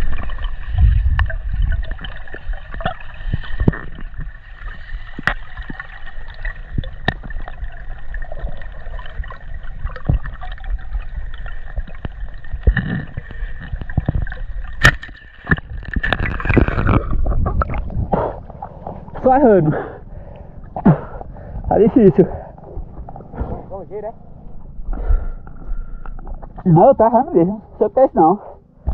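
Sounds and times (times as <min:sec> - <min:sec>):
gurgling churning water: 0:00.0 - 0:27.4.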